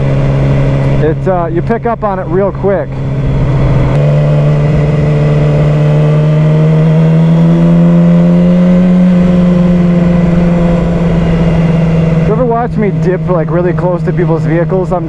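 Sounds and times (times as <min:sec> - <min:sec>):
motorcycle engine running: 0:00.0 - 0:15.0
wind rumble on microphone: 0:01.6 - 0:07.9.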